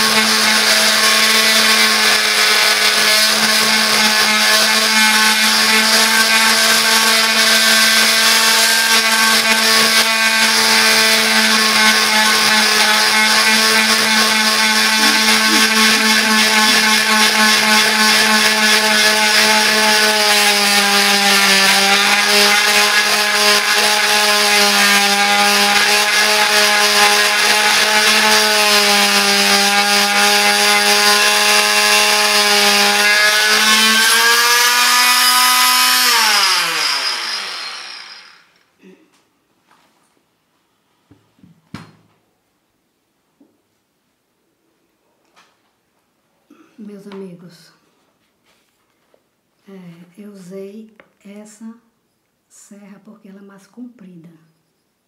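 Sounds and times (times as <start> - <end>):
multi-tool saw cutting wood: 0.0 - 38.7.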